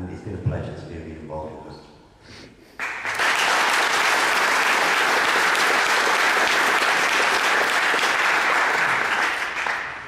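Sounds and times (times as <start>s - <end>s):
audience applauding: 2.8s - 10.0s
hands clapping close by: 2.8s - 10.0s.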